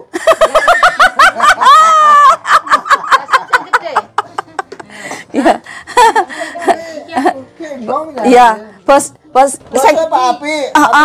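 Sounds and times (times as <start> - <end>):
person laughing: 0.1 - 4.8.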